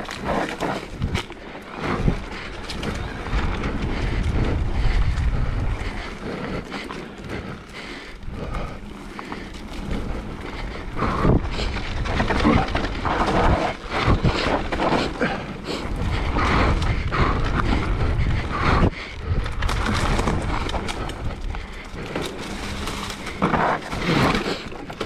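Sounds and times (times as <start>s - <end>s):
bike rattling over bumps: 0.0s - 25.0s
bike tyres rolling over dirt: 0.0s - 25.0s
wind on microphone: 0.8s - 6.6s, 9.8s - 14.8s, 15.8s - 22.0s.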